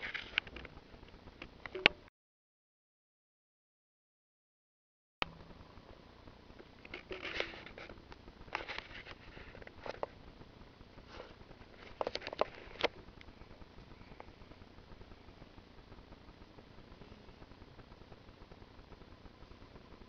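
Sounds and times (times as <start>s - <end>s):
rabbits chewing food: 6.5s - 18.3s.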